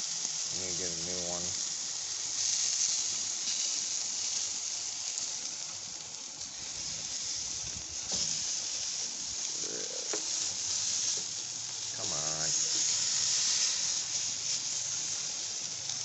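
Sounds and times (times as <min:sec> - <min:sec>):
food sizzling on grill: 0:00.0 - 0:16.0.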